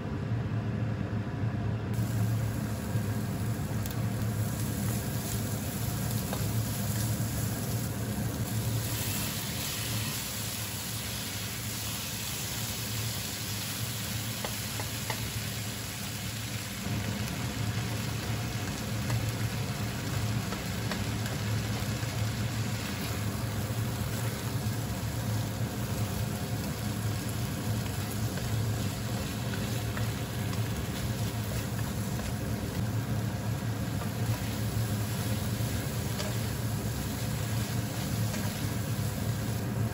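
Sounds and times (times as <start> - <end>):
low mechanical hum: 0.0 - 39.9
food sizzling in a wok: 2.0 - 39.9
spatula stirring: 27.8 - 39.4.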